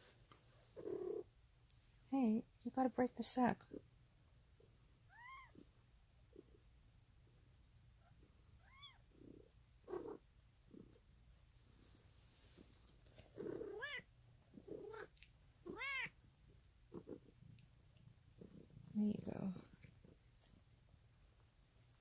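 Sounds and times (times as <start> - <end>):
cat mewing: 5.1 - 5.6, 13.4 - 14.0, 14.8 - 16.2.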